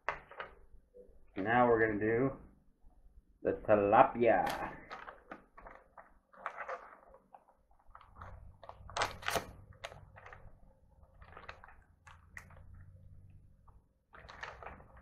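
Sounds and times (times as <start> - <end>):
plastic package crinkling: 4.4 - 15.0.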